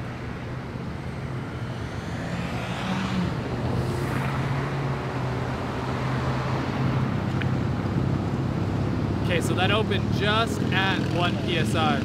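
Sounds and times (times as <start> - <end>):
traffic engine hum: 0.0 - 12.0
vehicle passing: 0.1 - 7.4.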